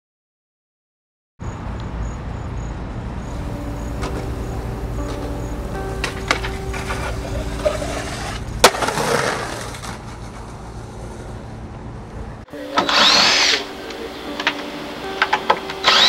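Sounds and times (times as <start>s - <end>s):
skateboard rolling on concrete: 3.3s - 12.8s
skateboard cracking: 4.0s - 11.5s
skateboard clacks: 6.0s - 11.4s
power drill whirring: 12.8s - 13.7s, 14.4s - 16.0s.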